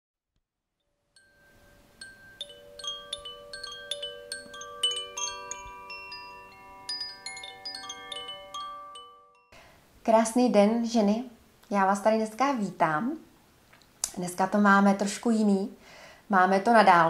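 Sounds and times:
chimes tinkling: 1.1s - 9.6s.

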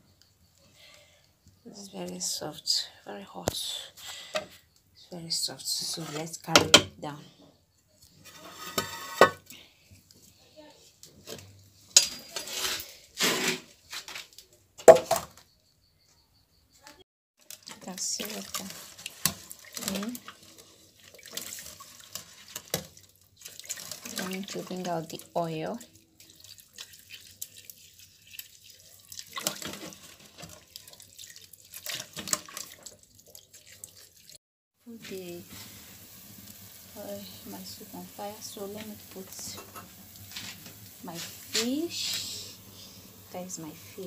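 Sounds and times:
metal pot scraping and clattering: 5.7s - 6.9s, 8.2s - 9.5s, 11.2s - 14.1s, 29.4s - 30.6s, 38.8s - 42.3s
metal pot clanking down: 8.3s - 9.4s, 39.4s - 40.0s
liquid splashing in a pot: 17.4s - 34.4s, 35.2s - 44.0s.

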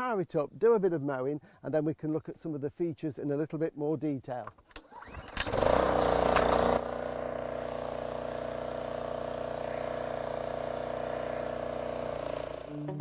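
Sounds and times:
small engine running: 4.9s - 13.0s.

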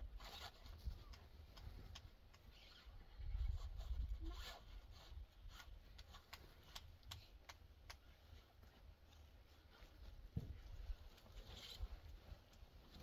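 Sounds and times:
soft clicks: 0.8s - 2.9s, 5.5s - 8.1s.

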